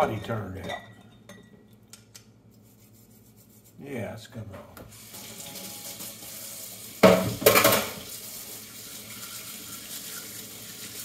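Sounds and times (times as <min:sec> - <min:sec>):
faucet running into metal sink: 0:04.9 - 0:11.0.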